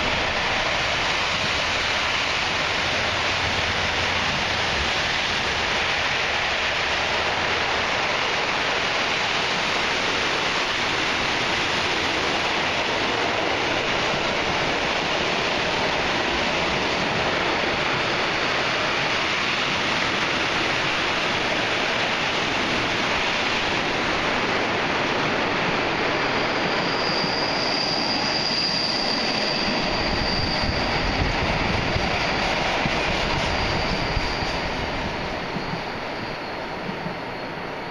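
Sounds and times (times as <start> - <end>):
train wheels rumbling on rails: 0.0 - 37.9
thin high squeal: 26.1 - 37.9.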